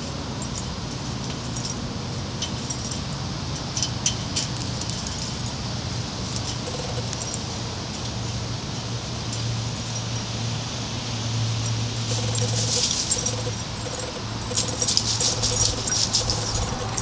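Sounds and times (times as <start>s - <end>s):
steady low hum: 0.0s - 17.0s
chain-link fence rattling: 0.4s - 5.7s, 11.7s - 17.0s
sharp metallic clinks: 11.6s - 17.0s.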